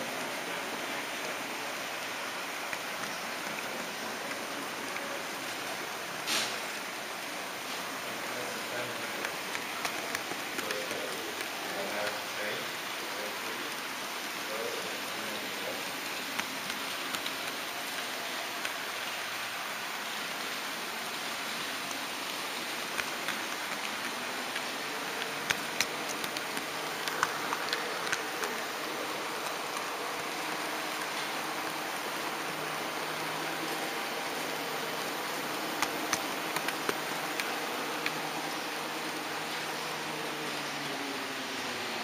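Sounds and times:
model train running on track: 0.0 - 42.0.

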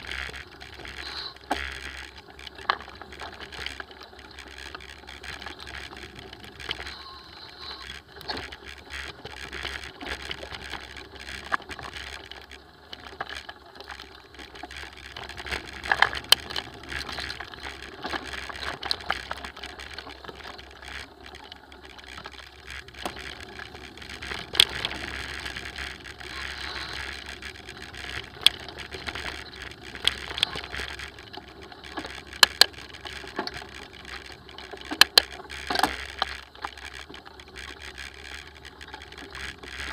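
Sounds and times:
bike rattling on dirt trail: 0.0 - 39.9
wheels knocking on bumps: 7.8 - 21.4.

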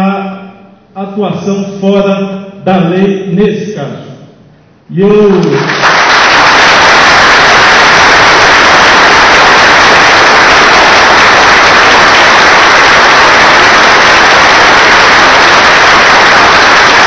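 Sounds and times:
audience applauding: 5.4 - 17.0.

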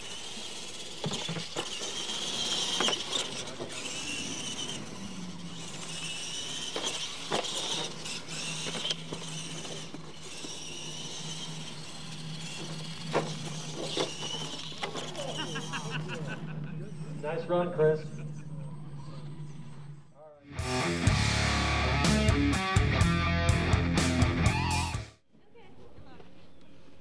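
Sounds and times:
electric motors and gears whining: 0.0 - 25.0
toy trucks thumping on landing: 0.5 - 5.0, 5.8 - 15.4.

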